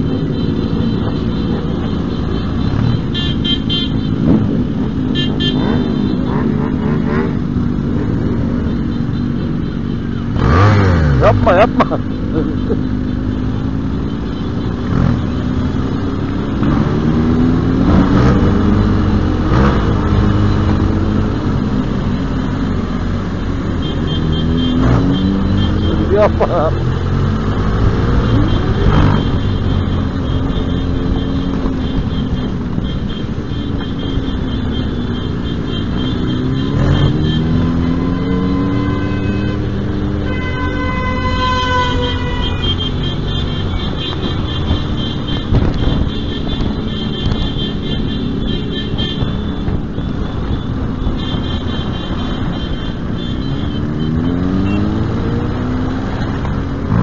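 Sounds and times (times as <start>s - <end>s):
horn sounding: 28.0s - 55.4s.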